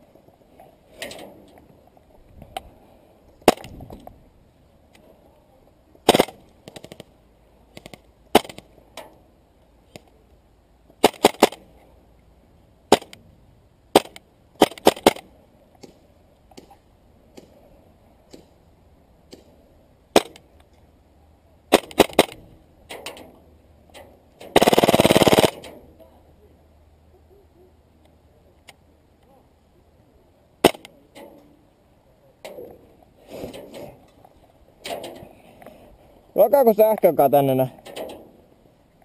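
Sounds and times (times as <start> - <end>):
airsoft guns firing sharp pops: 6.1 - 7.1, 7.7 - 8.7, 11.0 - 11.6, 12.9 - 13.2, 13.9 - 17.6, 20.2 - 20.5, 21.7 - 22.4, 24.5 - 25.7, 30.6 - 30.9.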